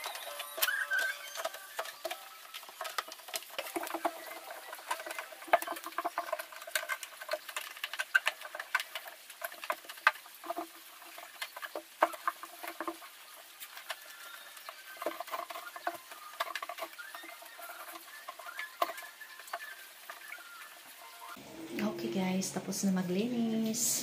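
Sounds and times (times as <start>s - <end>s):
short squeaks: 0.0s - 2.5s.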